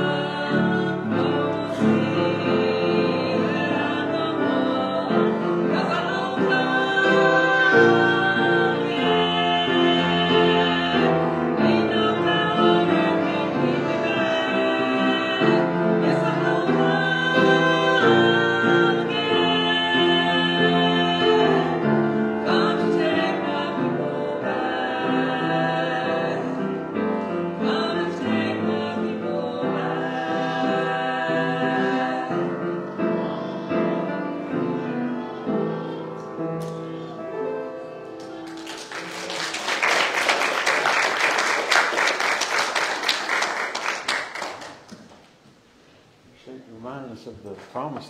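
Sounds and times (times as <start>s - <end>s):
two women singing a duet: 0.0s - 36.2s
upright piano accompaniment: 0.0s - 45.4s
congregation applauding: 38.1s - 45.4s.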